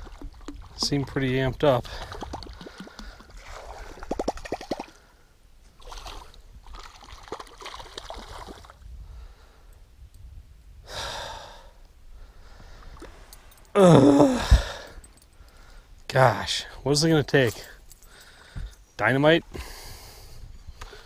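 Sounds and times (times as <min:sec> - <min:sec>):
man sighing and breathing: 0:10.8 - 0:15.9
man groaning: 0:13.8 - 0:14.8.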